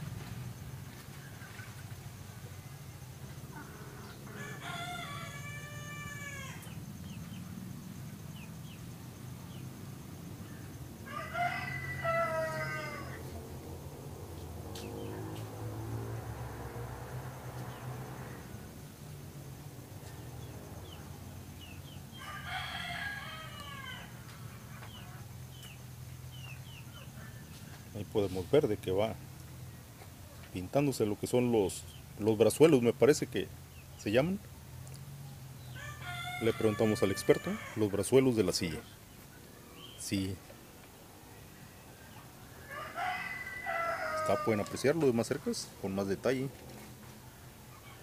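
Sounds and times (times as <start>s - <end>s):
rooster crowing: 3.5s - 6.8s, 11.0s - 13.4s, 20.0s - 25.3s, 35.6s - 38.8s, 42.4s - 45.7s.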